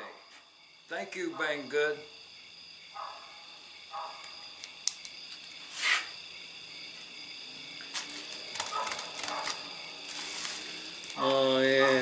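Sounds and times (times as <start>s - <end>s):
plastic packaging crinkling: 8.0s - 11.2s.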